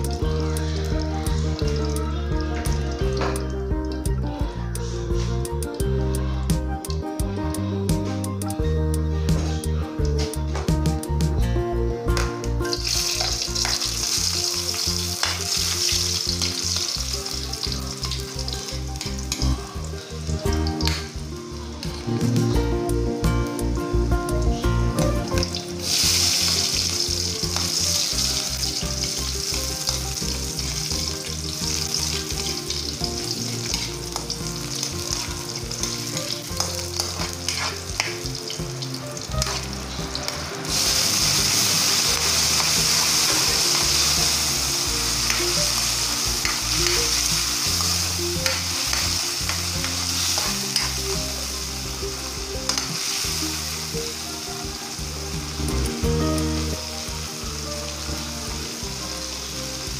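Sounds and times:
onion sizzling in hot oil: 0.0s - 5.0s, 12.6s - 59.9s.

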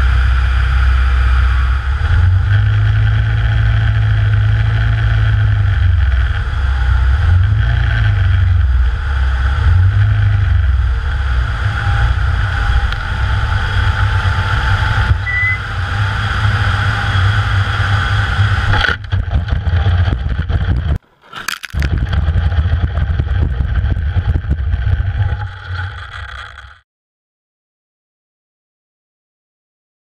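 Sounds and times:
drone engine and propeller whine: 0.0s - 21.0s
wind rumble on microphone: 0.0s - 21.0s, 21.8s - 26.2s.

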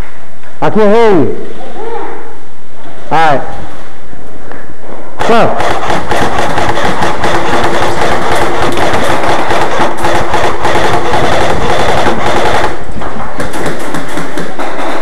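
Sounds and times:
airsoft guns firing automatic: 5.2s - 15.0s.

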